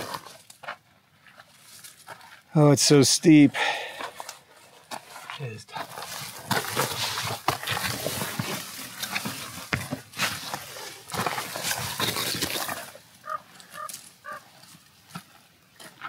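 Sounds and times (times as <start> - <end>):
steps scuffing on rock: 0.0 - 2.5, 3.9 - 16.0
heavy uneven breathing: 3.4 - 4.7.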